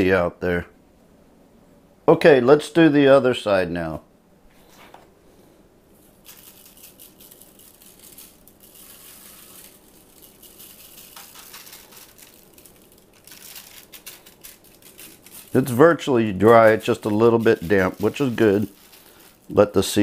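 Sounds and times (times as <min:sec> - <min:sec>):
seasoning shaker rattling: 0:06.0 - 0:20.0.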